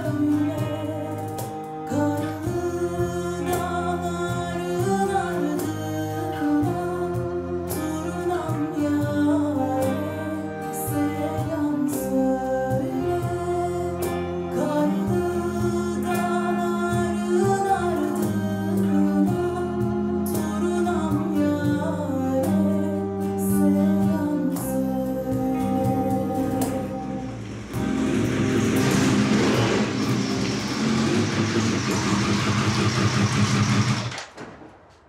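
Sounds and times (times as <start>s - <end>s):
woman singing into a microphone: 0.0s - 27.4s
cello: 0.0s - 33.2s
electric bass guitar: 0.0s - 34.2s.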